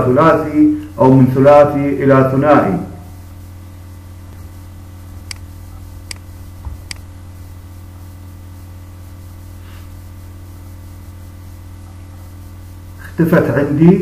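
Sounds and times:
steady low hum: 0.0 - 14.0
computer mouse clicks: 5.3 - 5.5, 6.1 - 6.3.

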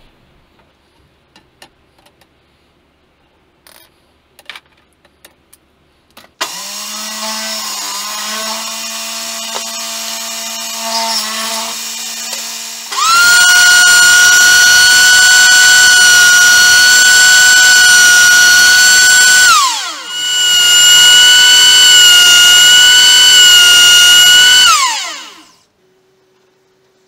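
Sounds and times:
power tool motor whine: 6.4 - 25.6
table saw cutting wood: 6.4 - 25.6.

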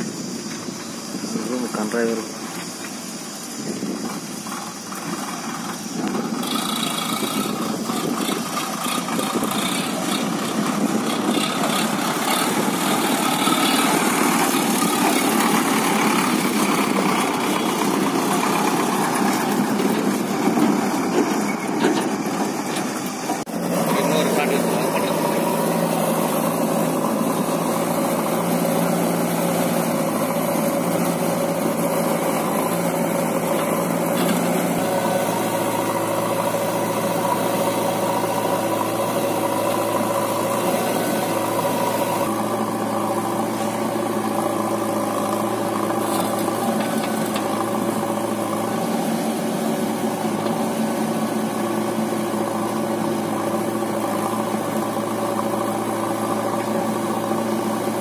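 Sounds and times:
backhoe loader engine working: 0.0 - 58.0
tractor engine idling: 0.0 - 58.0.

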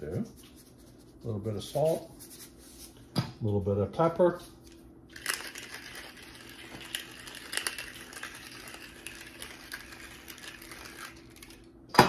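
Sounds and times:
pepper grinder crackling: 5.1 - 11.7.

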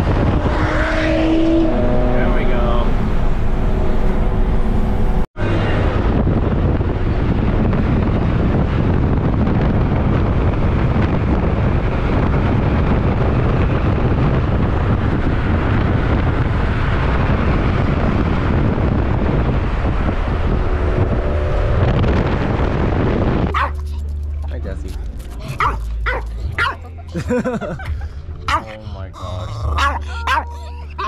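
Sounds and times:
car road and wind noise: 0.0 - 31.0
engines and tyres rumbling: 0.0 - 31.0.

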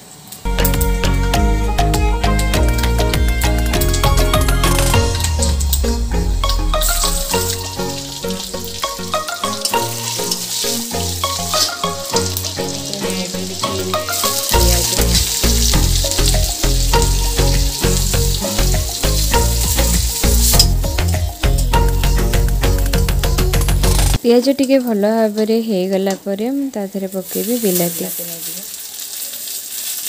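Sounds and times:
bass beat: 0.5 - 10.2, 12.2 - 24.2
plucked melody music: 0.5 - 24.2
onions sizzling in hot oil: 2.2 - 30.0.

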